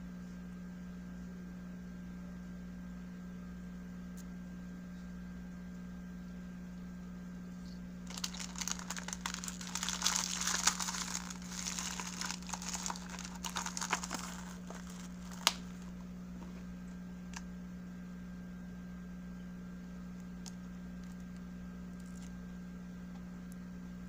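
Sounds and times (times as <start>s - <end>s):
steady low hum: 0.0s - 24.0s
plastic packaging crinkling: 8.0s - 16.0s.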